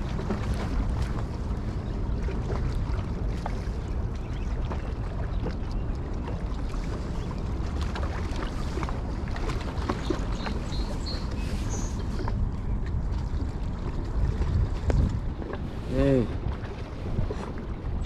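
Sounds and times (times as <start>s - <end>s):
wind rumbling on microphone: 0.0s - 18.0s.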